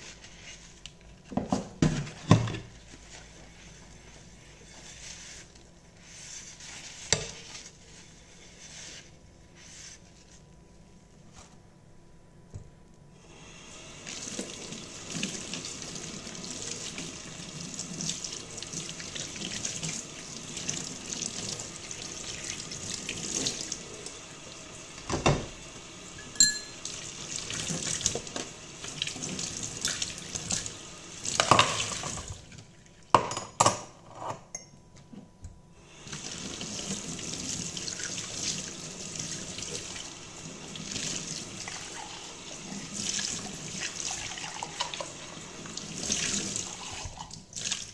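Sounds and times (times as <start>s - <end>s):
tap running into sink: 25.0s - 25.6s, 31.3s - 32.4s.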